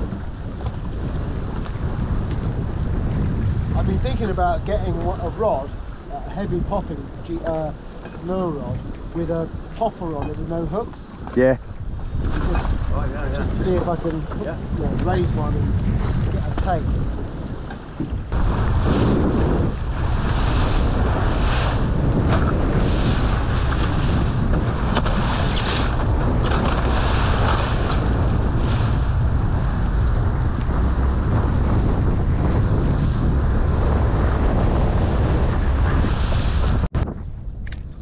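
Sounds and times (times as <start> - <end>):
motorboat running: 0.0 - 38.0
wind buffeting microphone: 0.0 - 38.0.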